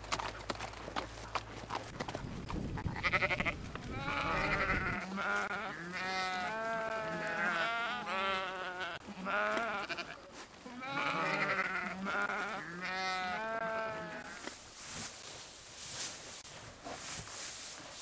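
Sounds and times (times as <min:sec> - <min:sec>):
sheep bleating: 0:03.0 - 0:14.4.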